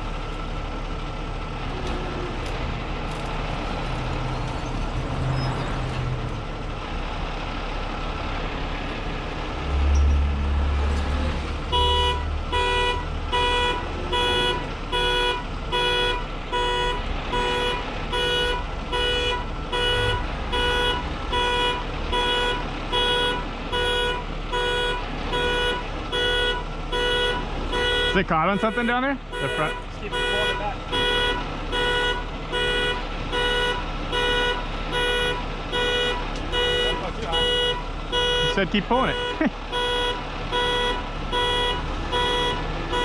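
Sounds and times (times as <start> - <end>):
diesel truck engine rumble: 0.0 - 43.0
vehicle warning beeper: 11.8 - 43.0.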